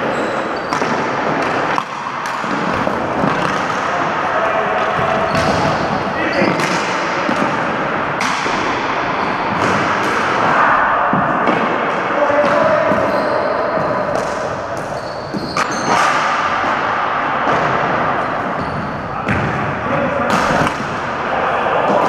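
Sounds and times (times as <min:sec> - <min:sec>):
sneakers squeaking: 0:00.0 - 0:07.8, 0:09.0 - 0:10.2, 0:11.1 - 0:16.9, 0:17.6 - 0:19.7
sticks striking ball: 0:00.7 - 0:04.2, 0:04.8 - 0:13.1, 0:20.3 - 0:21.2
ball hitting floor: 0:04.9 - 0:07.6.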